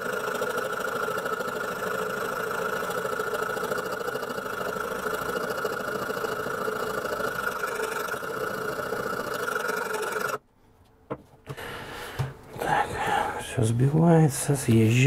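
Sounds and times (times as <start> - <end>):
small motor humming: 0.0 - 10.4.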